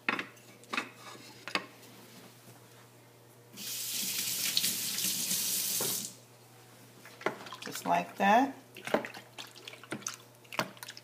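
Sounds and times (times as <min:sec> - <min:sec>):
kitchen tap running: 0:03.6 - 0:06.2.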